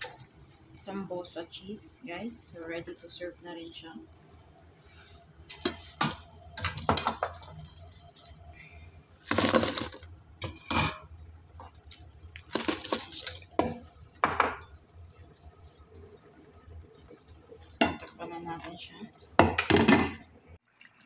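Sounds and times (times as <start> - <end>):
fried food spilling into pot: 9.2 - 10.2, 11.7 - 13.5.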